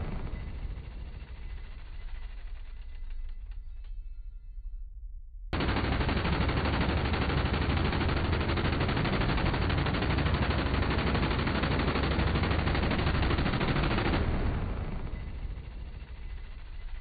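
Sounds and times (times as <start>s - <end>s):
minigun rapid fire: 5.6s - 17.0s.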